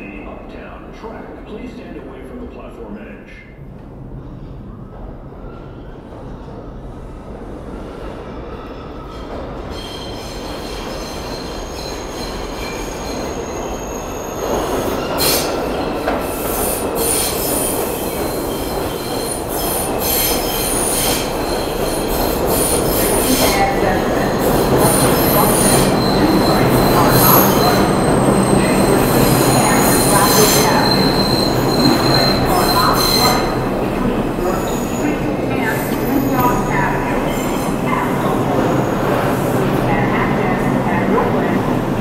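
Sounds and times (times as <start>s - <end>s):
subway train running noise: 0.0s - 42.0s
train wheels squealing: 8.5s - 23.6s, 24.2s - 33.6s.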